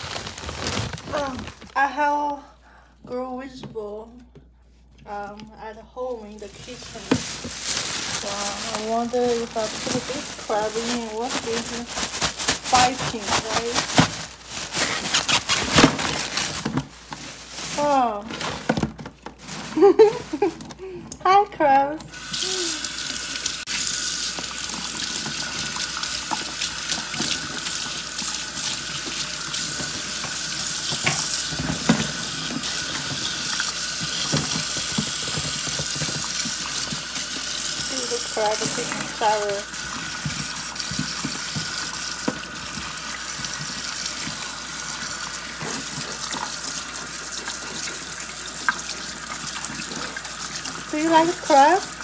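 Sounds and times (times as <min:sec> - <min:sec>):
tap water running into sink: 0:22.1 - 0:52.0.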